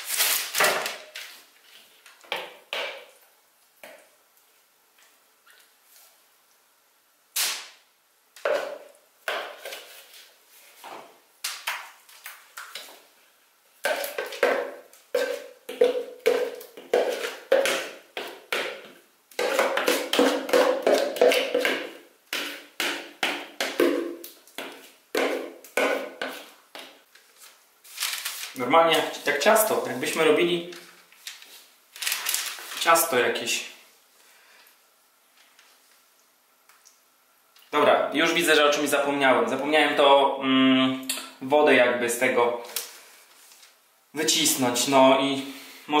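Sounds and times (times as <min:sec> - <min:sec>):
metal spoon scraping plastic bowl: 0:15.2 - 0:18.4.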